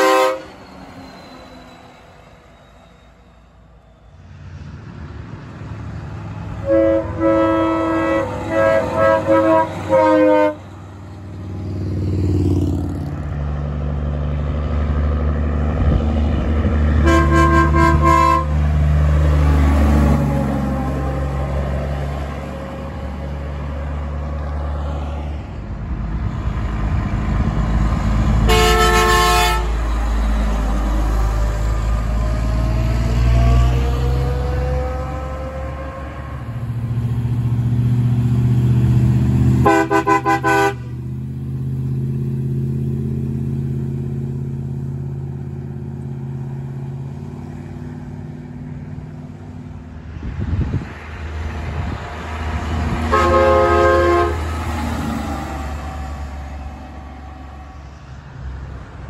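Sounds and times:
truck air horns blasting: 0:00.0 - 0:01.0, 0:06.4 - 0:11.0, 0:16.9 - 0:23.4, 0:28.4 - 0:30.1, 0:33.4 - 0:36.6, 0:39.5 - 0:41.0, 0:52.9 - 0:57.9
diesel engines running: 0:00.0 - 0:59.0.

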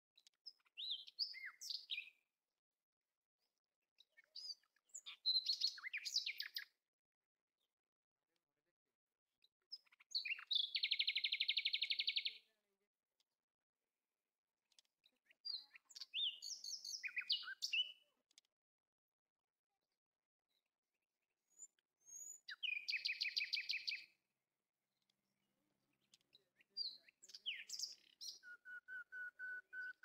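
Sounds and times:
bird chirping and whistling: 0:27.4 - 0:30.0.

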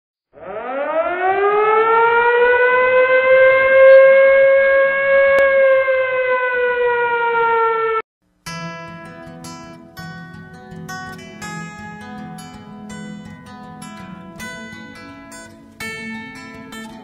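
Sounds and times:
warning siren long tone: 0:00.3 - 0:08.0.

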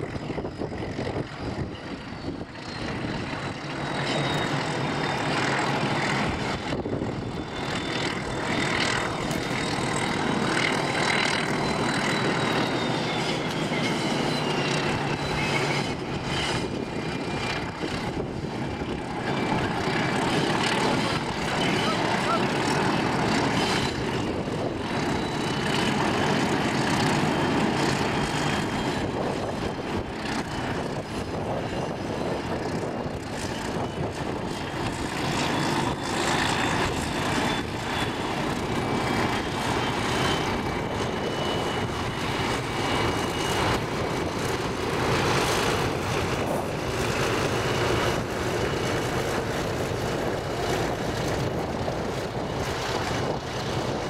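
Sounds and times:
diesel engine drone: 0:00.0 - 0:31.6.

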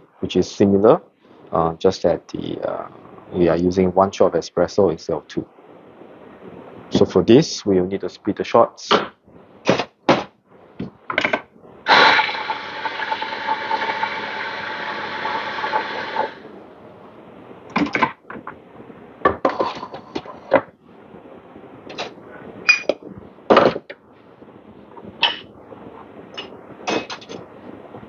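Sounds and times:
coffee grinder motor: 0:11.9 - 0:16.4.

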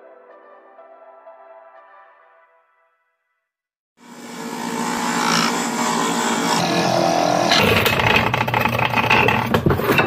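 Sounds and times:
wood lathe running: 0:04.0 - 0:10.0
lathe tool cutting clattering: 0:04.2 - 0:10.0.

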